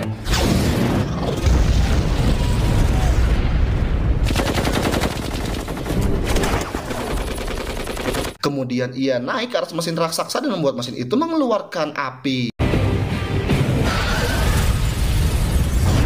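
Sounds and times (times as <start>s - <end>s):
automatic gunfire: 4.3s - 8.4s.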